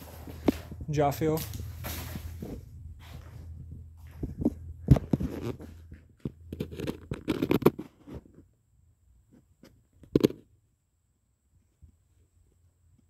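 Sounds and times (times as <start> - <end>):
footsteps crunching over litter: 0.0 - 6.2.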